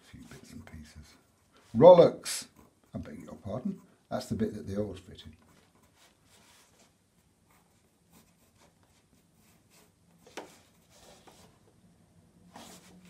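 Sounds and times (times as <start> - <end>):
pencil scratching on paper: 5.4 - 11.6.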